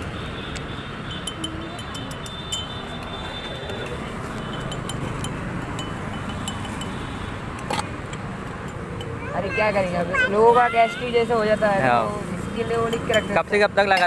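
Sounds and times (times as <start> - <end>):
steady background noise: 0.0 - 14.0
spoon clinking against glass: 1.1 - 7.0, 12.8 - 14.0.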